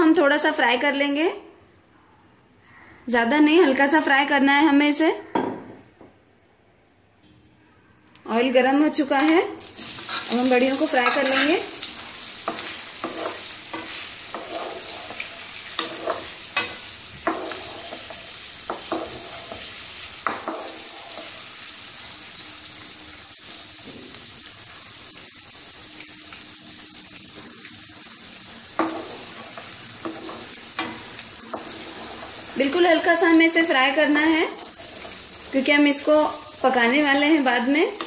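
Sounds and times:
food sizzling in hot oil: 9.2s - 38.0s
wooden spatula scraping a pan: 9.8s - 21.5s, 28.8s - 33.1s, 34.5s - 36.1s.

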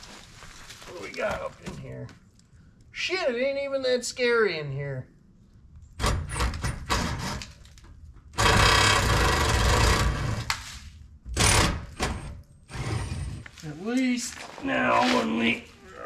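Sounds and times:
body scraping over leaves and gravel: 0.0s - 1.6s, 13.5s - 16.0s.

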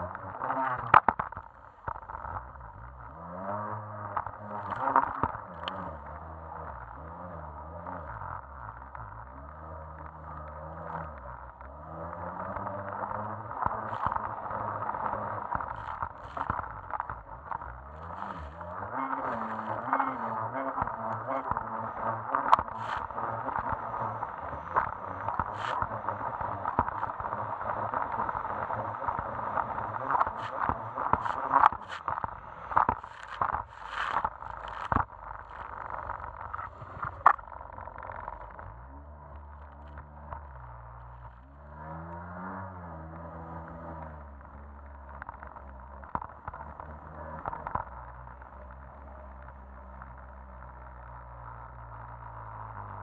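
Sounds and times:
jet ski engine drone: 18.0s - 34.9s.

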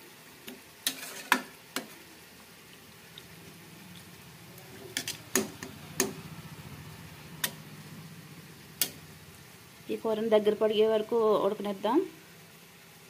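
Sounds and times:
curry bubbling: 0.4s - 10.0s.

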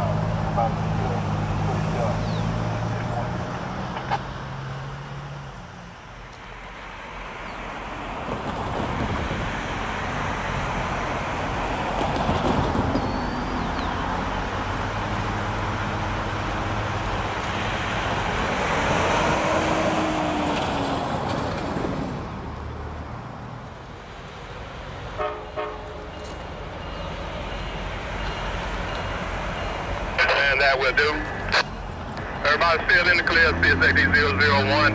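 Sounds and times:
diesel engine rumble: 0.0s - 34.9s
broad rushing noise: 27.3s - 34.9s.

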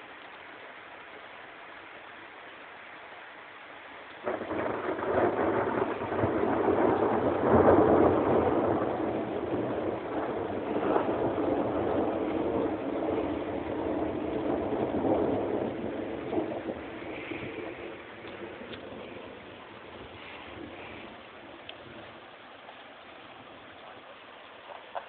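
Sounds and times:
thunder clap and rumble: 4.2s - 22.4s.

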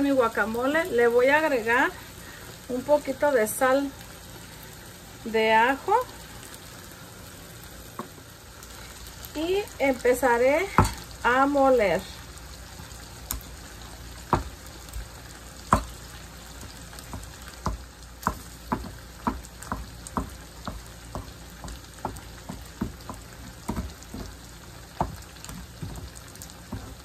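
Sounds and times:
meat sizzling in a pan: 0.0s - 27.0s
stone pestle knocking and scraping: 17.1s - 24.4s.

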